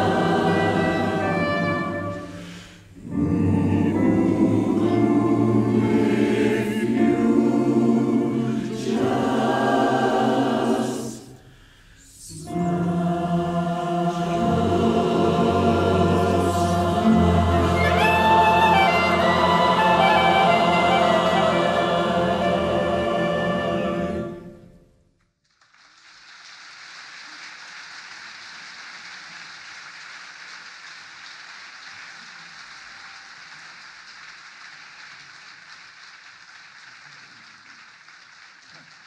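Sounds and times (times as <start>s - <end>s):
choir with piano and cello: 0.0s - 24.8s
audience applause: 25.5s - 39.0s.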